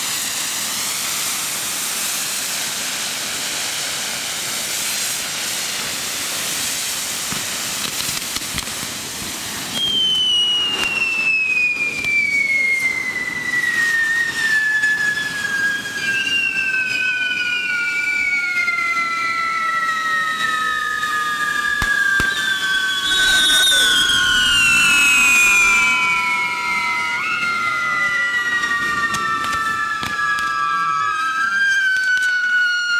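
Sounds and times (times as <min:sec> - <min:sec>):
sparks hissing: 0:00.0 - 0:11.4, 0:21.3 - 0:27.1
firework cracks: 0:00.0 - 0:32.6
falling firework whistle: 0:00.0 - 0:32.9.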